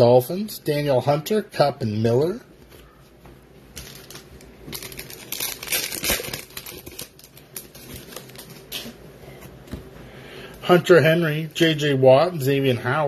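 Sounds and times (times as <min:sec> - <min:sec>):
foil wrapper crinkling and tearing: 0:03.8 - 0:09.0.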